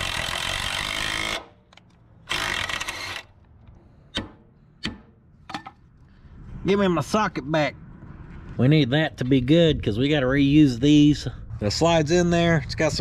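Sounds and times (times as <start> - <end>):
impact wrench hammering: 4.1 - 5.8.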